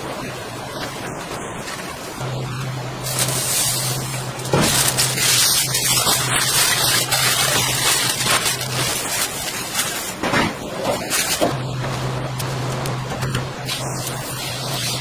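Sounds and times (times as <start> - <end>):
aluminium foil crinkling: 3.0 - 10.2.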